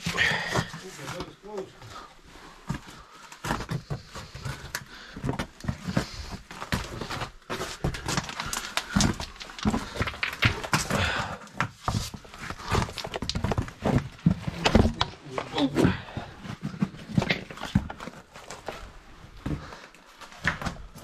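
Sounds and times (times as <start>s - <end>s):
scraping and knocking on rock: 3.5s - 18.0s.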